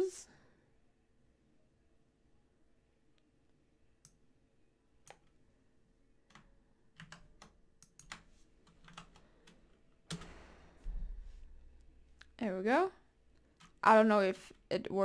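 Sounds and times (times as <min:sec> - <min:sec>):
typing on computer keyboard: 0:06.3 - 0:10.4.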